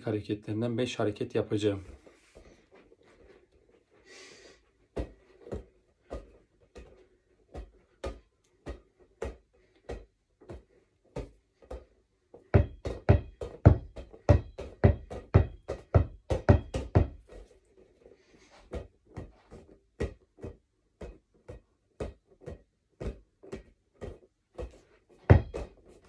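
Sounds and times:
ball bouncing on hard floor: 4.9s - 17.6s, 18.6s - 26.0s.

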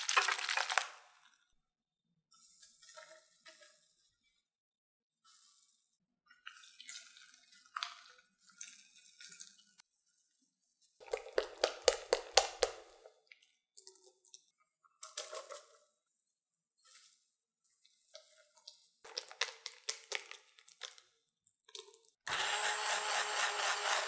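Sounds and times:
pouring and handling sounds: 0.0s - 1.5s, 10.8s - 13.2s, 16.8s - 22.2s
cheese dropping into wet batter: 11.0s - 13.1s
whisk beating batter in glass bowl: 22.3s - 24.0s.

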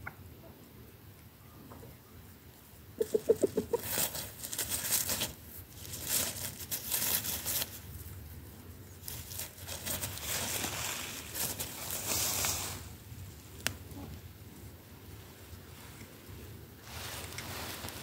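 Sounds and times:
rooster clucking: 3.0s - 4.1s
dry leaves rustling: 3.0s - 18.0s.

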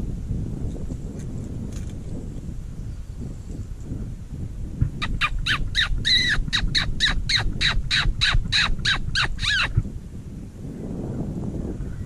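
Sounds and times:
fox whistle squeals: 5.0s - 9.8s.

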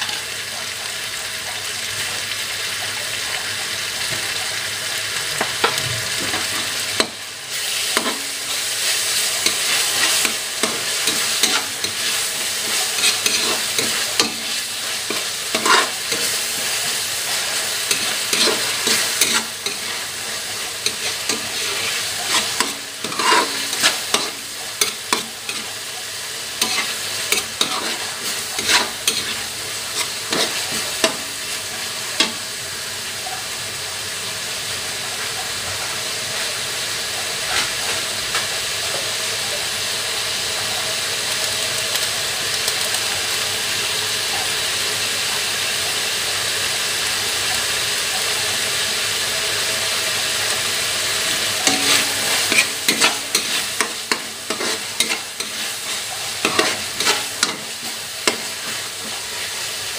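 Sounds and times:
food sizzling in oil: 0.0s - 59.9s
metal spatula scraping wok: 5.6s - 25.8s, 26.5s - 31.6s, 37.4s - 38.4s, 51.2s - 59.5s.

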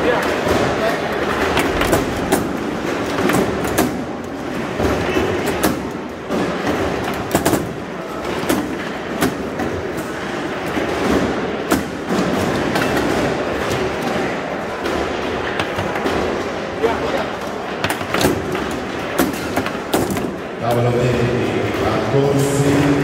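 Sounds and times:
busy hall din: 0.0s - 23.0s
foosball ball clacking: 1.3s - 4.0s.

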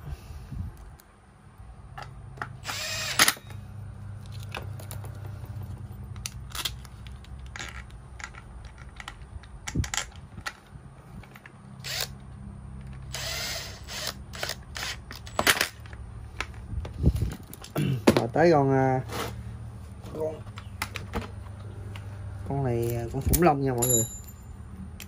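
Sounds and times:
small electric motor whirring: 2.6s - 3.6s, 11.8s - 12.2s, 12.9s - 15.3s.

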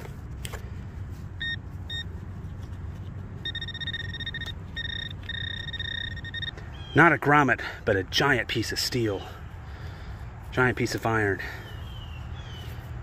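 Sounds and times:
metal detector probe beeping: 1.4s - 2.1s, 3.4s - 6.6s.

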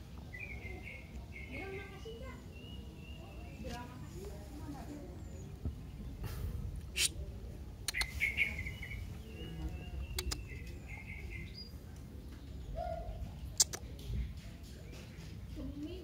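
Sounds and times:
birds chirping: 0.0s - 16.0s
sharp clicks: 10.1s - 10.7s, 13.6s - 14.1s.

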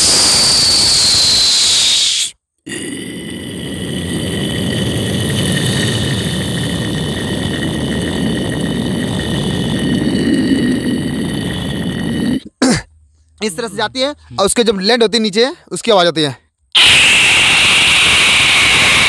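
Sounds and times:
man imitating aeroplane engine: 1.6s - 12.5s, 16.8s - 19.0s.

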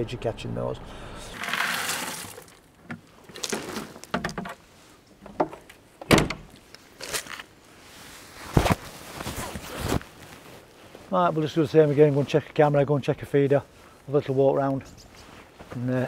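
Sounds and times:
knocks and clunks of equipment: 2.9s - 4.6s.

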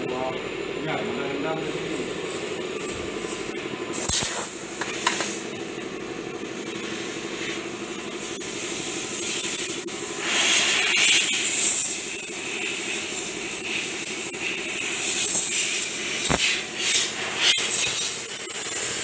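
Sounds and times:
steady low hum: 0.0s - 19.0s
airbrush hissing: 6.4s - 19.0s.

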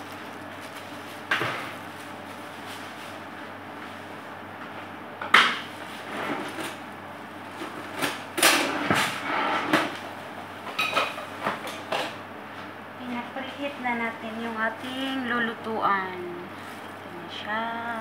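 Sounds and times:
steady low hum: 0.0s - 18.0s
kitchen clunks and rattles: 10.7s - 12.2s.

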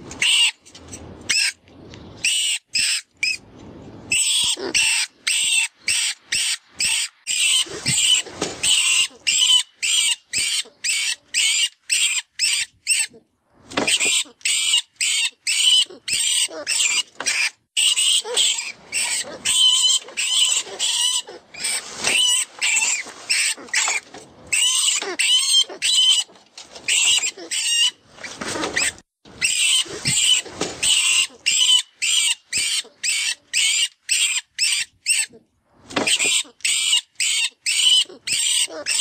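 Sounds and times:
rodent squealing in distress: 13.9s - 26.3s, 28.6s - 35.4s, 36.1s - 39.0s.

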